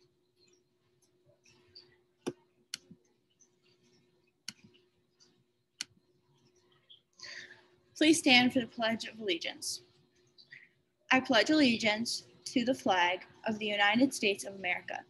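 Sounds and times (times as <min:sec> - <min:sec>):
computer mouse clicks: 0:00.4 - 0:07.0.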